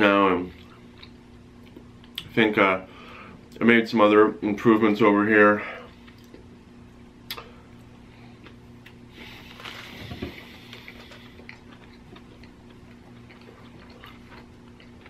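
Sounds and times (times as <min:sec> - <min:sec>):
steady low hum: 0:00.0 - 0:15.0
person chewing food: 0:00.5 - 0:02.3, 0:06.0 - 0:06.5, 0:07.3 - 0:15.0.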